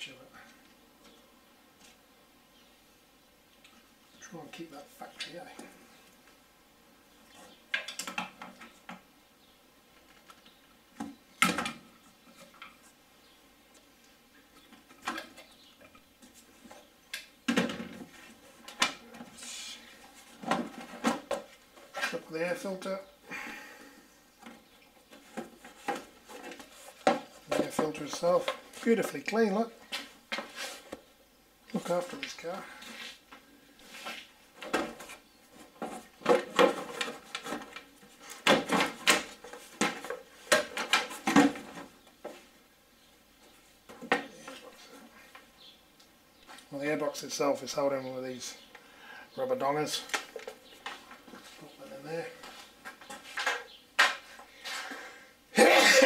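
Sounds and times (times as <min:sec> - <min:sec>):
plastic knocks and scrapes: 0:24.4 - 0:28.9.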